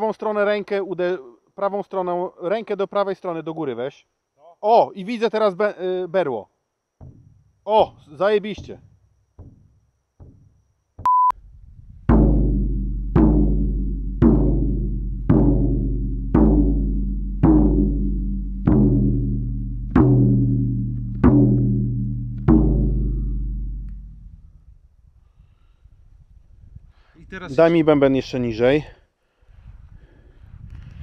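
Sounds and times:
frame drum strikes: 7.0s - 7.5s, 8.5s - 11.1s, 12.0s - 24.4s
electronic beep: 11.0s - 11.3s.

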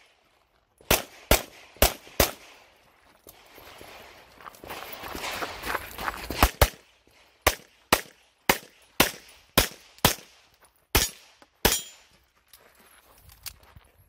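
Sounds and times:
footsteps crunching on gravel: 0.0s - 0.9s, 2.6s - 7.3s, 10.5s - 14.0s
pistol shots: 0.8s - 2.6s, 6.4s - 12.0s.

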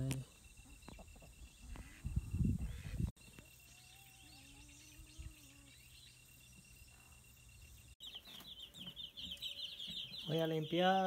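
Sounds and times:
insects chirping: 0.0s - 11.0s
chicks peeping: 8.0s - 11.0s.

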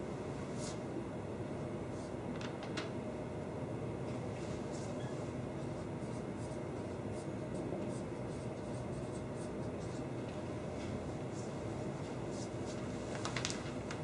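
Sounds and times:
low background hum: 0.0s - 14.0s
marker scratching on whiteboard: 4.7s - 10.2s.

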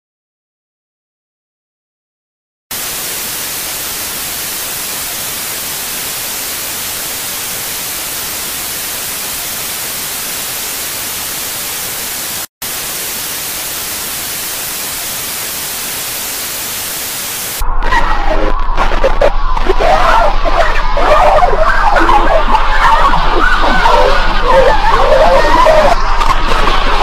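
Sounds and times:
television static hiss: 2.7s - 17.6s.

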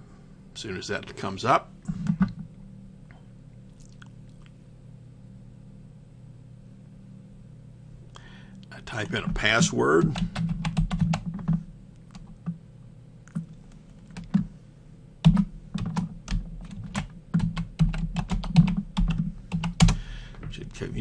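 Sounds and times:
computer keyboard typing: 10.0s - 12.6s, 14.1s - 14.5s, 15.2s - 20.0s.

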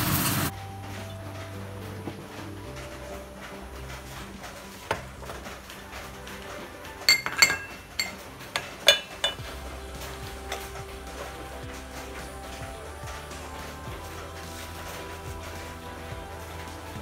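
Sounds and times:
glassware clinking: 5.9s - 9.6s.

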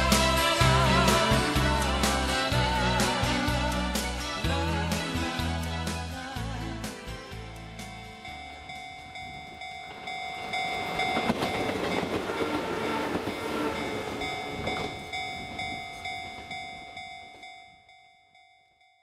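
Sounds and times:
pulsing ringing tone: 7.8s - 19.0s
train wheels clattering: 8.7s - 16.6s.

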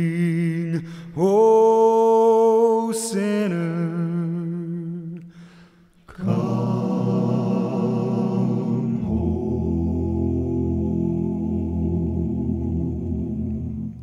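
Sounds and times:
vocal group singing a hymn: 6.1s - 14.0s.

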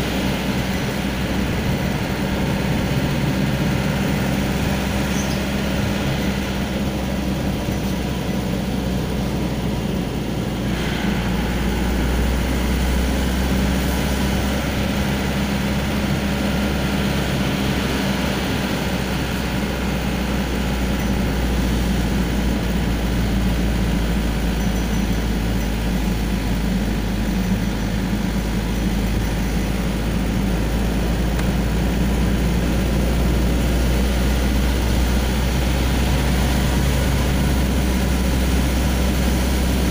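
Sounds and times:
car engine and road noise: 0.0s - 39.9s.

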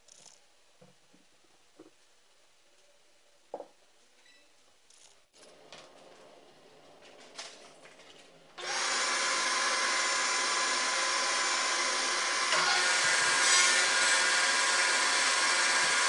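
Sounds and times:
table saw motor whine: 8.6s - 16.0s
saw blade ripping wood: 12.4s - 15.4s.

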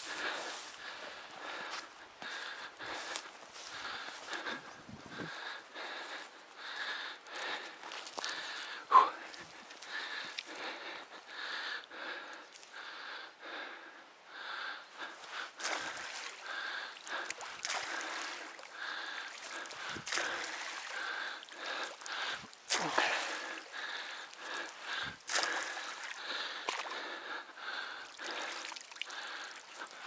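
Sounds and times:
person breathing heavily: 0.0s - 30.0s
branch splashing through water: 17.0s - 18.7s, 22.6s - 23.6s, 25.3s - 26.9s
sharp splashes and knocks: 17.2s - 18.7s, 19.3s - 21.0s, 22.5s - 23.6s, 25.2s - 26.9s.

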